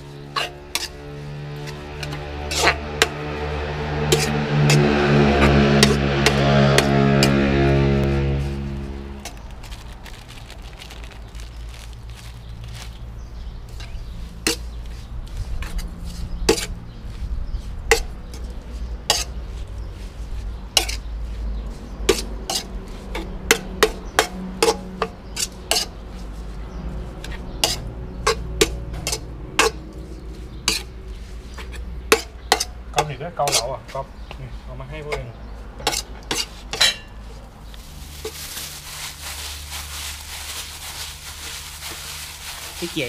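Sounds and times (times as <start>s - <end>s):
cutlery and dishes clinking: 35.9s - 37.2s.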